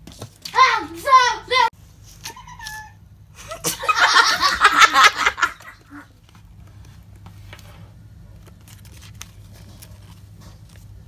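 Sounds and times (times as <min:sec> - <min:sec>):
paper rustling and tapping: 0:00.0 - 0:00.6
burst of laughter: 0:03.4 - 0:06.0.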